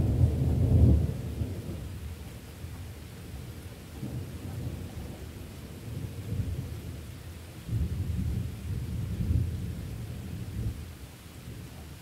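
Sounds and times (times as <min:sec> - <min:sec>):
thunder rumbling: 0:00.0 - 0:02.0
steady rain: 0:00.0 - 0:12.0.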